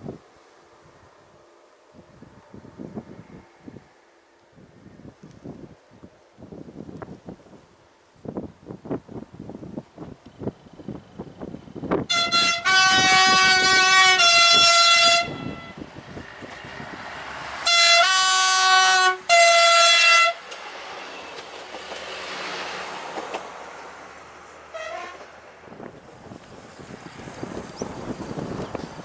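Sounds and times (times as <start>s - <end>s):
railcar passing on rails: 0.0s - 29.0s
two-tone train horn: 12.1s - 15.9s, 17.6s - 20.4s, 24.7s - 25.3s.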